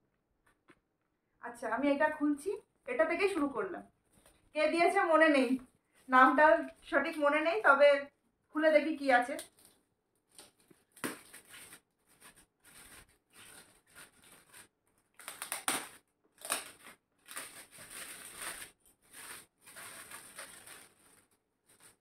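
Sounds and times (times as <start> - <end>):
wrapping paper crinkling and tearing: 9.4 - 22.0.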